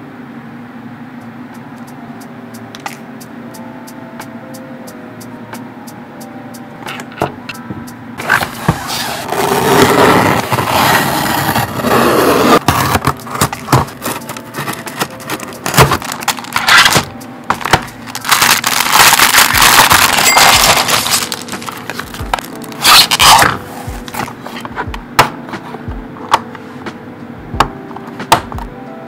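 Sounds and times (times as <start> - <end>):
soft background music: 1.2 - 29.0
plastic wrapping crinkling: 12.8 - 24.2.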